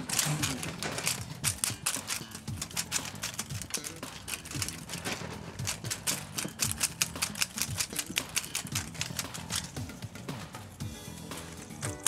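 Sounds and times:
cat toy rattling against cage bars: 0.0 - 9.9.

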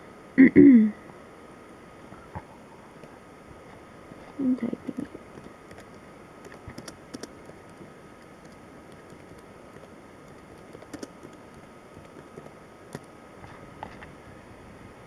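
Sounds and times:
low steady hiss: 0.0 - 15.0
keyboard key clicks: 5.4 - 13.1.

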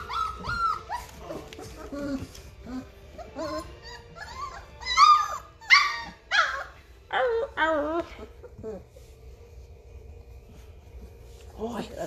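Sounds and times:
puppies yipping and whining: 0.0 - 9.8.

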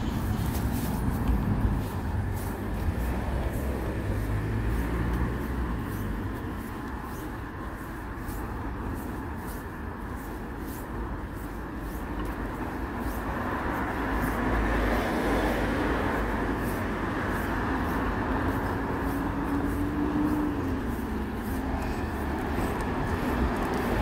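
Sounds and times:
large vehicle drone: 0.0 - 7.6, 13.4 - 24.0.

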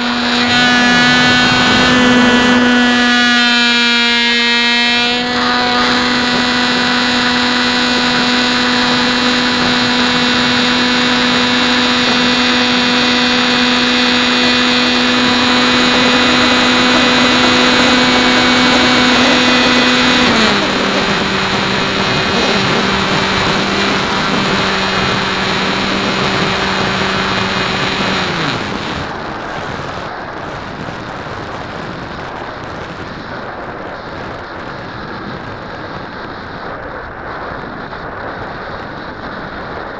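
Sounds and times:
electric motor and propeller droning: 0.0 - 30.0
wind noise: 0.0 - 39.9.

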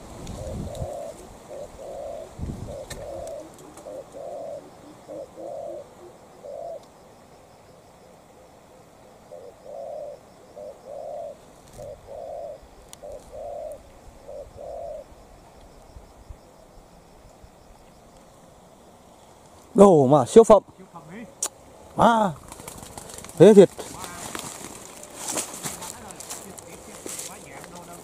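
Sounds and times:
dove cooing: 0.0 - 15.6, 21.7 - 28.0.

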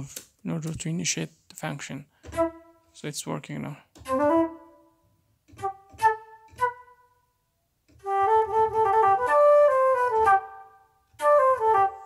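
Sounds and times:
alto flute notes: 4.0 - 4.9, 5.5 - 7.0, 8.0 - 12.0.

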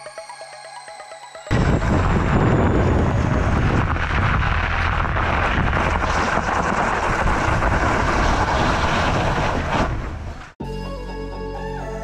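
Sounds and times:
bike tyre rolling over crusted snow: 1.5 - 10.6
wind rushing on microphone: 1.5 - 10.6.

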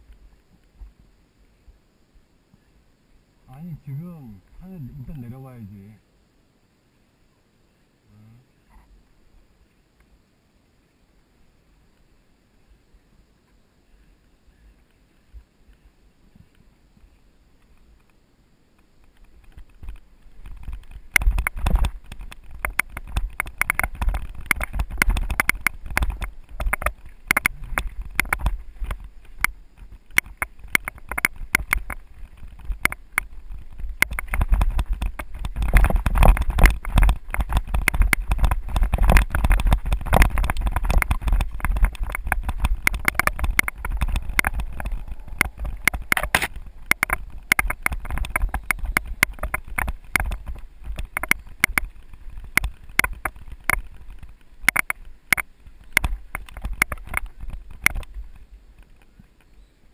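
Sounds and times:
bike rattling over rough dirt: 3.5 - 6.0, 14.7 - 59.9.

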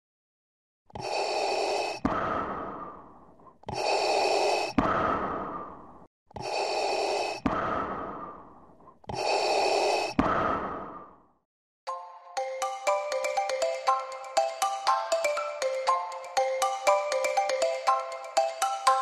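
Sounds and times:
airy breath-like whoosh: 0.9 - 11.3.

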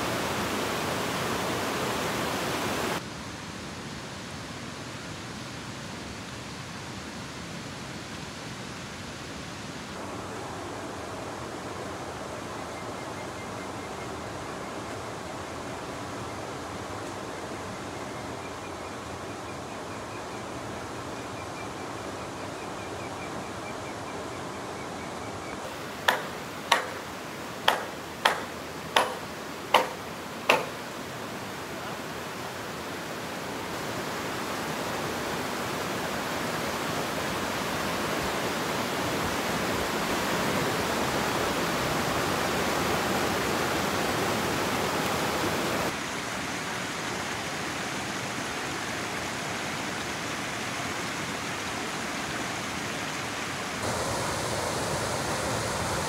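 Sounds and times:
steady rushing noise: 53.8 - 56.0.

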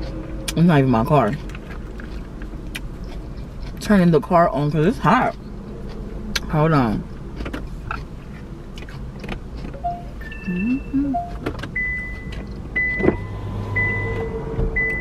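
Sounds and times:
car engine starting and idling: 0.0 - 15.0
car dashboard chimes: 9.6 - 10.5, 11.1 - 14.2
warning chime beeping: 9.8 - 13.0.

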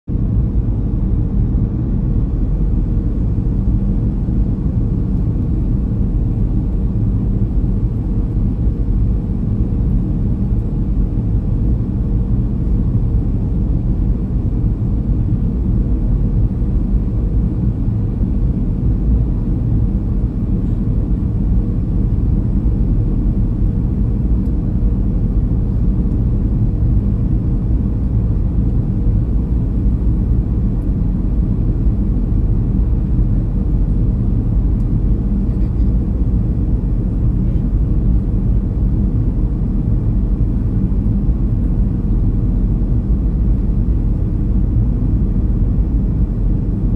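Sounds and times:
jet engines running: 0.1 - 46.9.

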